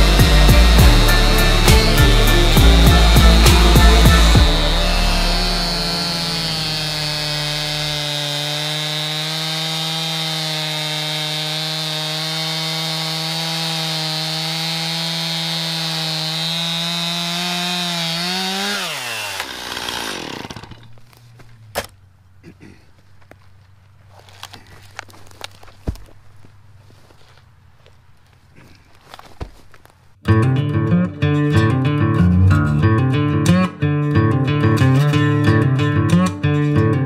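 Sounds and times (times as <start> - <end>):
chainsaw cutting log: 0.0 - 21.9.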